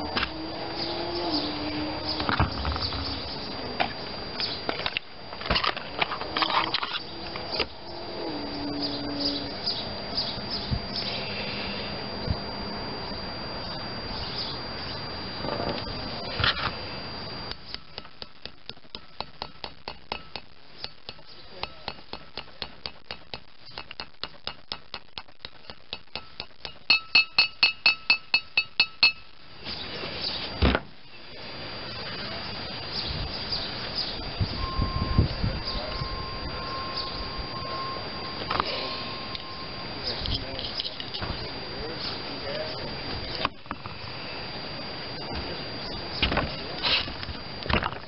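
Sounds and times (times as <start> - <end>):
small hammer tapping metal: 17.6 - 29.3
ringing metal hammer strikes: 17.8 - 29.4.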